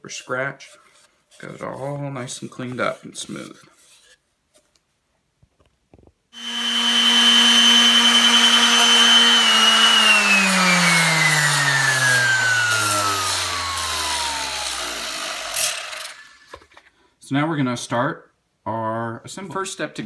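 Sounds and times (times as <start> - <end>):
rotary tool sanding plastic pipe: 0.1 - 4.2, 6.4 - 16.6.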